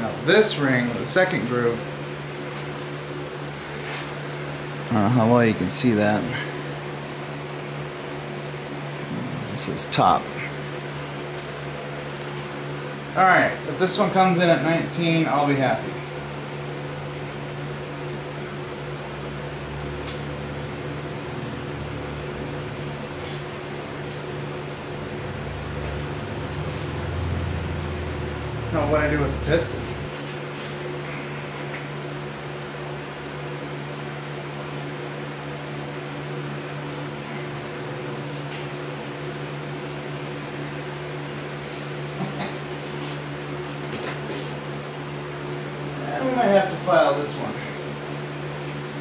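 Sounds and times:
electric fan humming: 0.0s - 49.0s
low droning tone: 19.0s - 30.3s.

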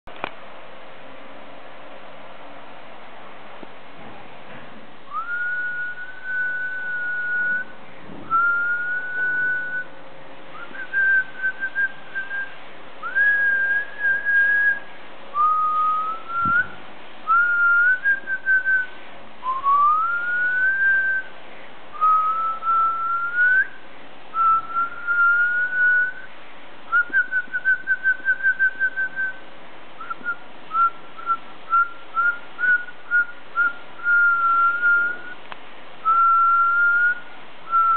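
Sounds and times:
person whistling: 5.1s - 7.7s, 8.3s - 9.9s, 10.5s - 14.8s, 15.4s - 21.3s, 21.9s - 23.7s, 24.4s - 26.3s, 26.9s - 29.4s, 30.0s - 35.4s, 36.0s - 37.9s.

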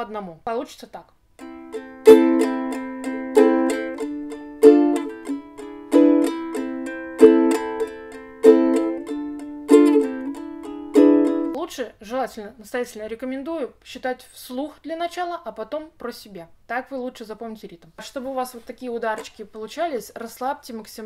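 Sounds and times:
ukulele strumming: 1.4s - 11.6s.

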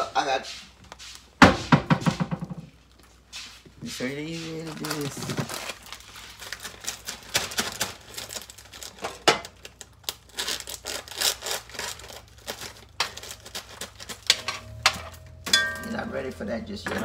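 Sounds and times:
plastic bag crinkling: 4.1s - 14.8s.

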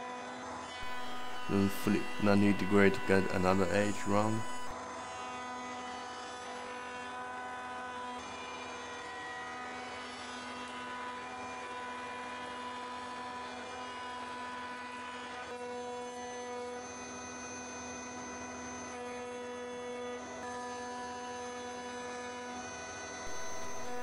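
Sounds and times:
router motor whine: 0.0s - 24.0s
hiss of wood cutting: 0.8s - 4.7s, 23.3s - 24.0s.

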